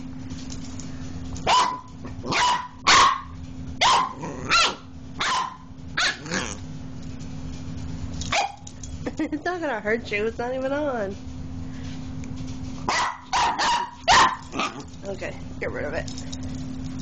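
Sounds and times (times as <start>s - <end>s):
puppy barking: 1.4s - 6.6s, 8.3s - 8.6s, 12.8s - 14.9s.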